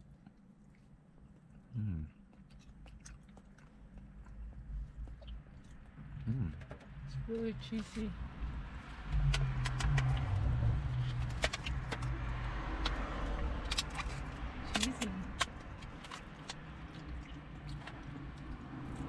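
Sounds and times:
chewing: 0:00.0 - 0:06.4, 0:12.8 - 0:19.0.

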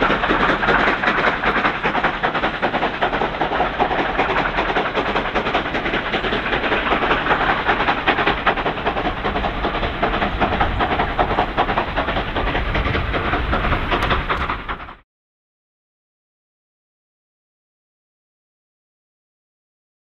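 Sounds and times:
hissing steam: 0:00.0 - 0:15.0
steam locomotive exhaust beats: 0:00.0 - 0:15.0.

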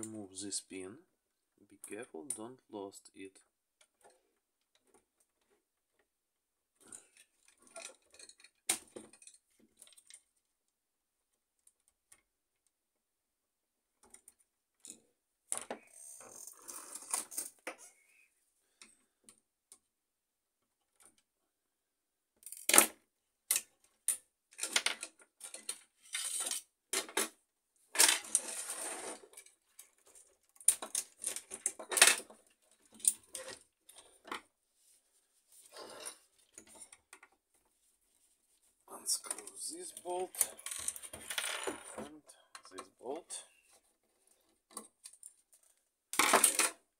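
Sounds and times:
plastic and metal parts clattering: 0:06.8 - 0:10.4, 0:22.4 - 0:34.5, 0:35.6 - 0:37.6, 0:39.1 - 0:46.8.

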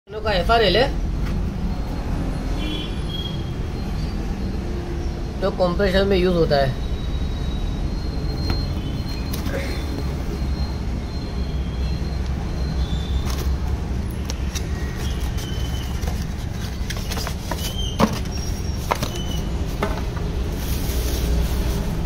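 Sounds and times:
cardboard box taps and scrapes: 0:15.0 - 0:20.2.

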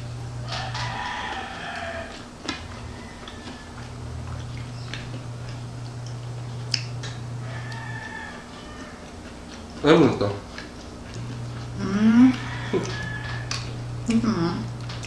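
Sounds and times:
low steady hum: 0:00.0 - 0:15.0
chewing and plate clicks: 0:00.4 - 0:15.0.

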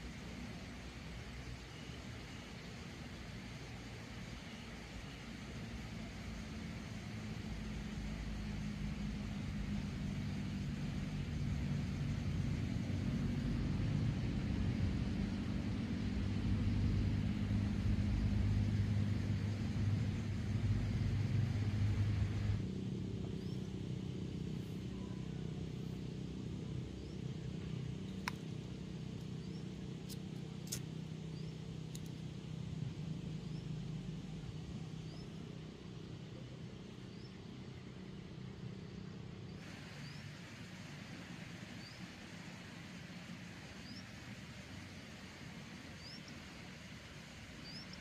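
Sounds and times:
distant engine rumble: 0:00.0 - 0:48.0.

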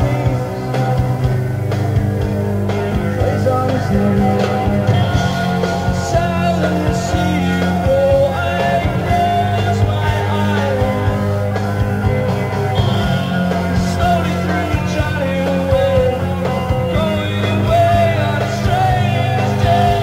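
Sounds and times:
man singing: 0:00.0 - 0:01.3, 0:03.2 - 0:11.4, 0:13.6 - 0:20.0
bass line: 0:00.0 - 0:20.0
drum beats: 0:00.0 - 0:20.0.

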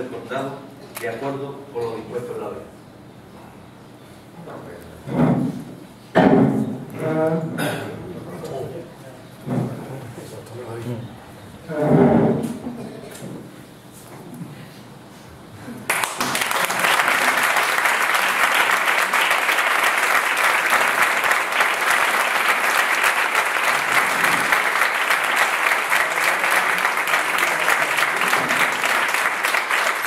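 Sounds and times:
audience applauding: 0:15.9 - 0:30.0.

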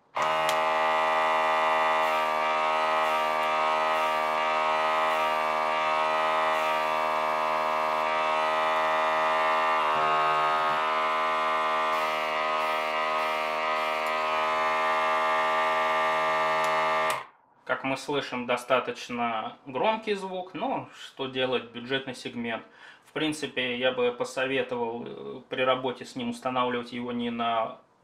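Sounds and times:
airbrush compressor humming: 0:00.0 - 0:17.3.

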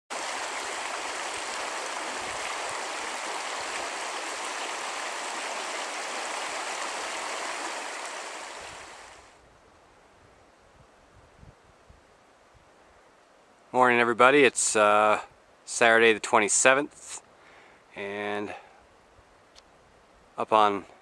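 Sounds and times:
creek running over stones: 0:00.1 - 0:09.3.

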